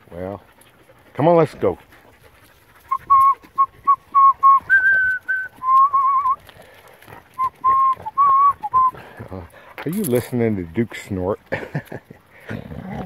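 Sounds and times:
person whistling a tune: 2.9 - 6.4, 7.4 - 9.0.

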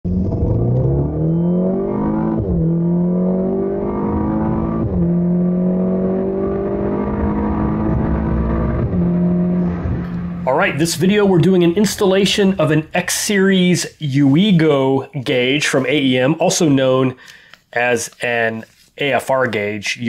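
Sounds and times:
car engine accelerating hard: 0.1 - 11.4.

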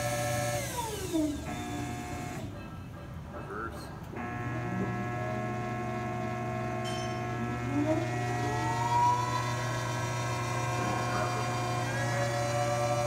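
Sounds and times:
electric motor humming with whine: 0.0 - 2.5, 4.2 - 13.0
rising whine: 6.0 - 13.0.

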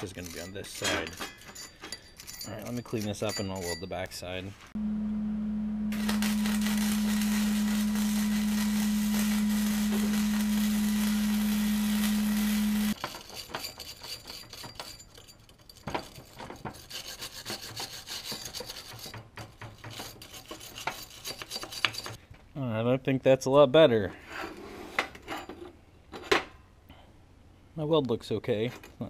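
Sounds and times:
wire brush scrubbing metal: 0.0 - 3.6, 6.0 - 22.2
welding arc crackling: 5.9 - 13.0.

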